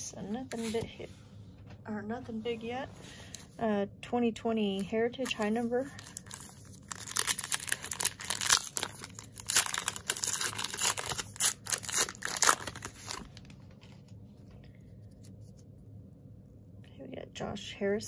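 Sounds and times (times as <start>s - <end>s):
wrapper tearing and crinkling: 6.0s - 13.6s.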